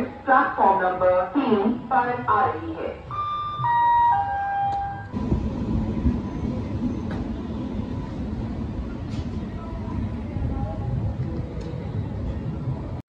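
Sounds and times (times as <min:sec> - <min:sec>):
public-address chime: 0:02.2 - 0:05.2.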